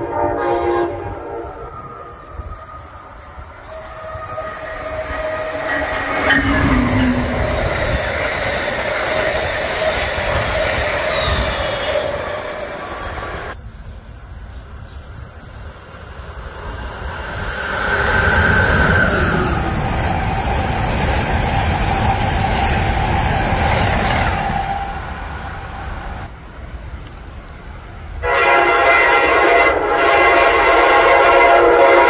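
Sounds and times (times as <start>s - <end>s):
train wheels on rails: 1.6s - 32.0s
wheel squeal: 3.6s - 7.4s, 10.7s - 12.3s.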